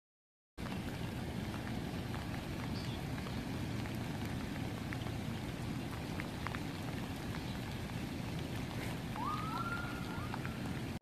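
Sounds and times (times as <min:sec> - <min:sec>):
raindrops ticking close by: 0:00.6 - 0:11.0
steady rain falling: 0:00.6 - 0:11.0.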